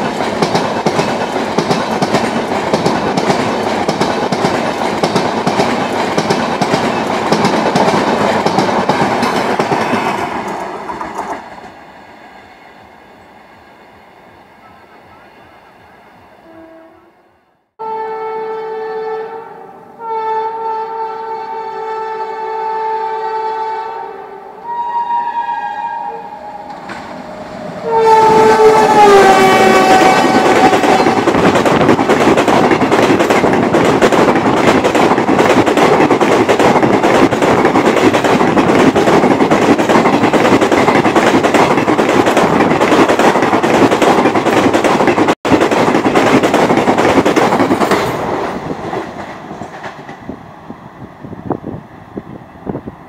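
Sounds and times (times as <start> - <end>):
train wheels on rails: 0.0 - 16.1, 26.5 - 53.0
two-tone train horn: 16.4 - 26.9, 27.6 - 31.3.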